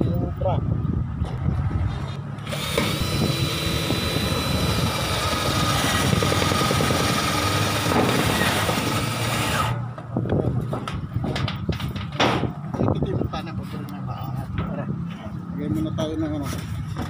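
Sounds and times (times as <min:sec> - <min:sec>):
loud machine noise: 0:02.4 - 0:09.9.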